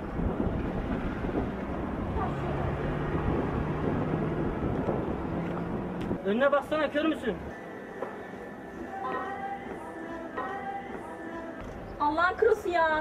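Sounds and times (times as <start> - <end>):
traffic rumble: 0.0 - 7.6
town noise: 0.0 - 13.0.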